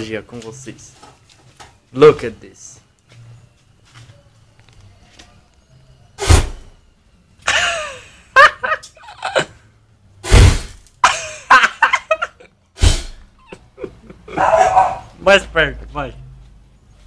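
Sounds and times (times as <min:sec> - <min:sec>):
flame whooshing bursts: 0:10.2 - 0:10.9, 0:12.8 - 0:13.2.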